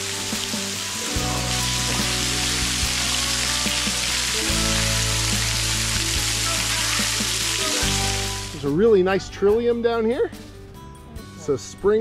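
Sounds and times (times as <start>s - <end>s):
waterfall spattering on rock: 0.0s - 8.6s
soft background music: 0.0s - 12.0s.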